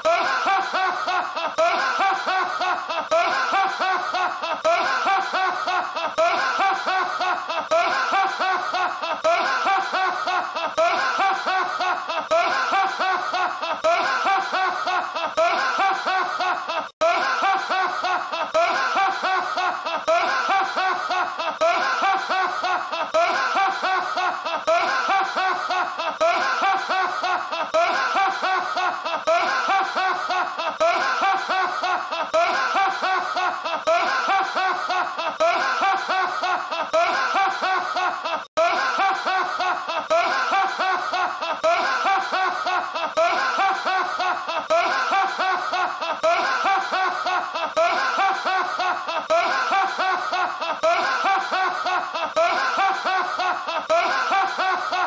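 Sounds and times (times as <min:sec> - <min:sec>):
man laughing heartily: 0:00.0 - 0:55.0.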